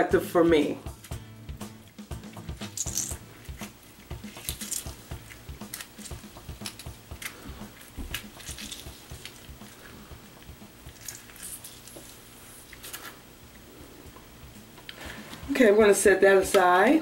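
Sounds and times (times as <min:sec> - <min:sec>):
wet lemon squeezing: 0:02.3 - 0:13.2.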